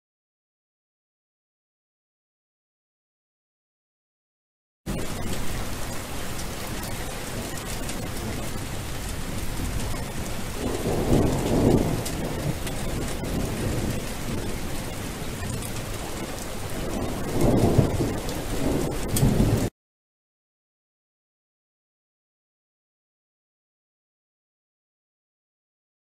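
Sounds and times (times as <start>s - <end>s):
low rumbles of thunder: 4.9s - 19.7s
steady rain falling: 4.9s - 19.7s.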